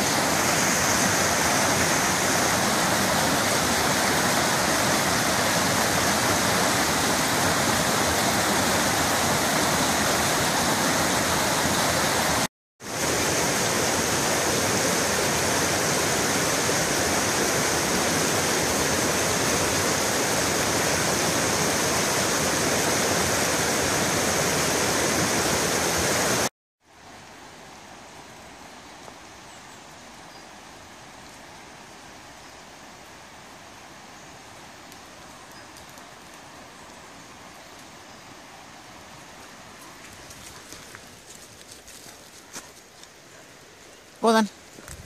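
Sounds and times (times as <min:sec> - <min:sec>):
water rushing over stones: 0:00.0 - 0:26.5.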